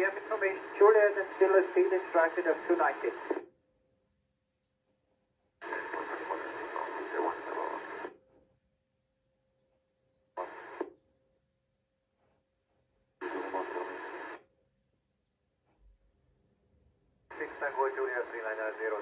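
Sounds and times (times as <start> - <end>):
radio hiss and static: 0.0 - 3.4, 5.6 - 8.1, 10.4 - 10.9, 13.2 - 14.4, 17.3 - 19.0.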